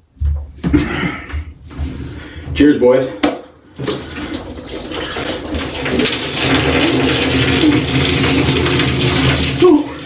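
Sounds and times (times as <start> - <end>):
beer pouring and splashing: 3.6 - 10.0.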